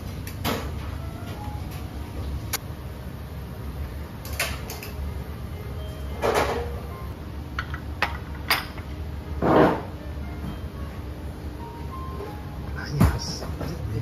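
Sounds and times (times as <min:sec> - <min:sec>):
steady low hum: 0:00.0 - 0:14.0
tableware and utensils clicking: 0:07.6 - 0:09.9.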